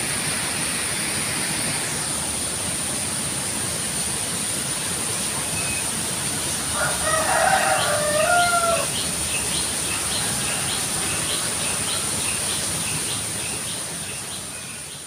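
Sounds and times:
rooster crowing: 0:06.7 - 0:09.0, 0:09.8 - 0:12.0.

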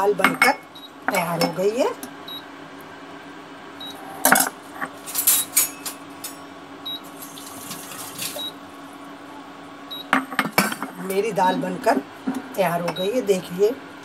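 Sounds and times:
metal clinking on metal: 0:04.3 - 0:06.4.

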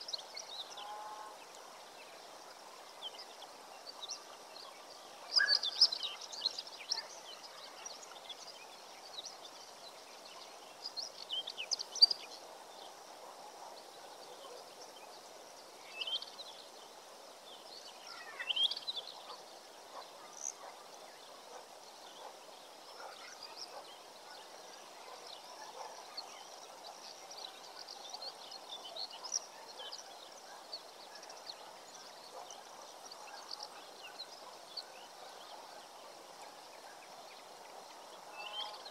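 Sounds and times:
steady background hiss: 0:00.0 - 0:38.9
birds chirping: 0:23.0 - 0:38.9.

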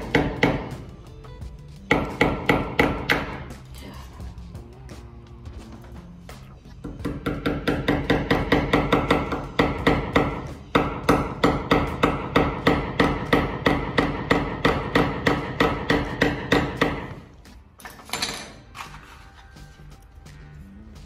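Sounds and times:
hammer driving a nail: 0:00.0 - 0:00.8, 0:01.9 - 0:03.6, 0:06.8 - 0:17.3.

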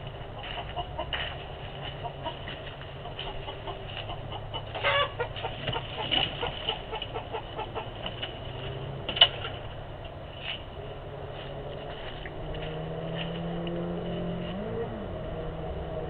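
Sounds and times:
hen clucking: 0:00.0 - 0:08.9.

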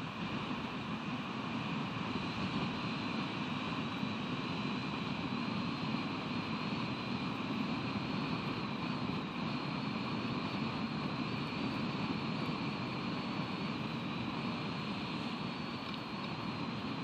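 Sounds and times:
faint high electronic whine: 0:00.0 - 0:17.0
wind: 0:00.0 - 0:17.0.

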